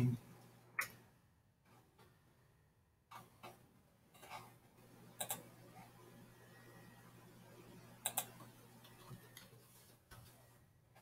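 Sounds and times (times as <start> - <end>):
faint hum: 2.2 - 11.0
computer mouse clicks: 5.2 - 5.5, 8.0 - 9.5.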